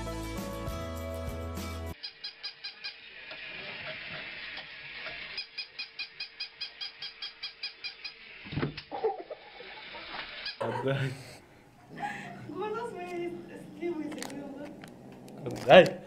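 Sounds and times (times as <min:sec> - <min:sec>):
music: 0:00.0 - 0:02.0.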